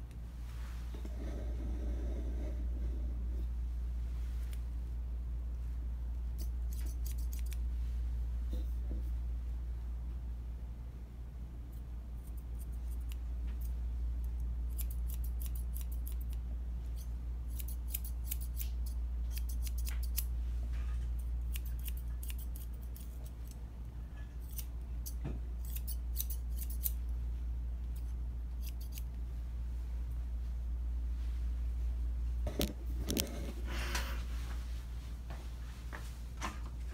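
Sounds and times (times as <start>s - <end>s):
steady low hum: 0.0s - 36.9s
shears snipping fur: 6.3s - 7.7s, 12.2s - 13.8s, 14.6s - 20.4s, 21.0s - 23.6s, 24.4s - 27.0s, 27.9s - 29.1s.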